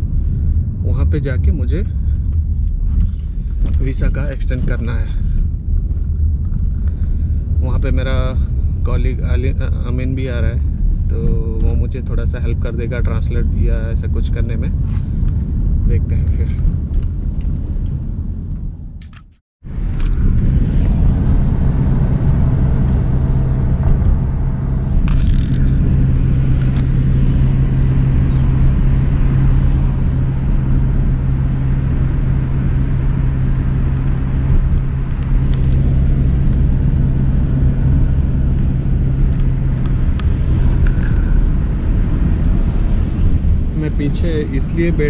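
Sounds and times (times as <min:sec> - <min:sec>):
car engine and tyre rumble: 0:00.0 - 0:45.0.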